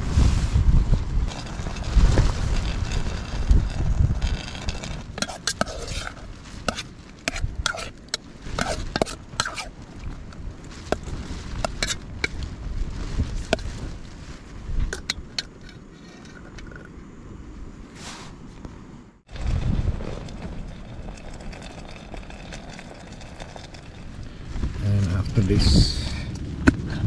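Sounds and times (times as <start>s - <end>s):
metal spoon scraping metal pot: 1.3s - 9.7s
low rumble: 23.9s - 27.0s.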